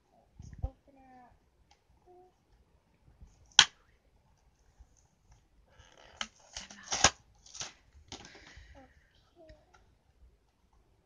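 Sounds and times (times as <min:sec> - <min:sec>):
plastic packaging snapping and crackling: 0:06.0 - 0:08.4.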